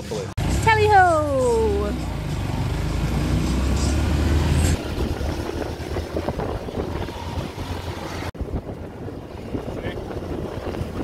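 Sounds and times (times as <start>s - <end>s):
wind on microphone: 4.7s - 11.0s.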